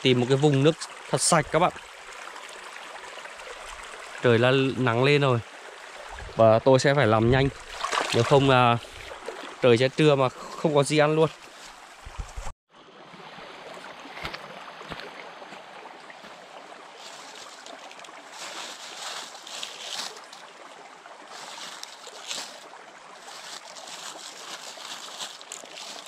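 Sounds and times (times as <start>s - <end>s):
stream running over stones: 0.0s - 26.0s.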